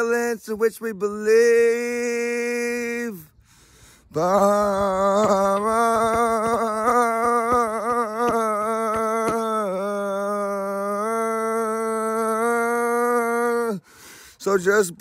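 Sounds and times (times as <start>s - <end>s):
man singing a long note: 4.1s - 13.8s.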